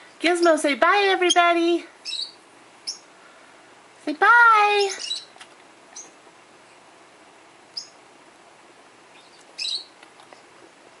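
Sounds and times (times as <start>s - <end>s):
bird chirping: 1.2s - 3.1s, 4.8s - 6.8s, 7.7s - 8.0s, 9.1s - 10.5s.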